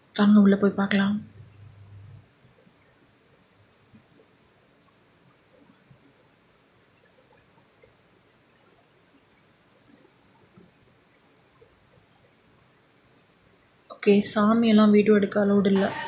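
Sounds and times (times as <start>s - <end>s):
faint background hiss: 0.0s - 16.0s
steady high-pitched tone: 14.0s - 16.0s.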